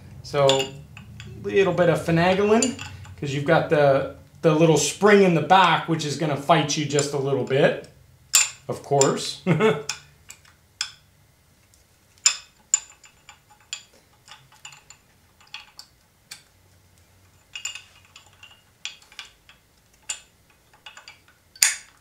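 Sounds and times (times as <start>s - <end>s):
metal brake pads clicking: 17.3s - 22.0s.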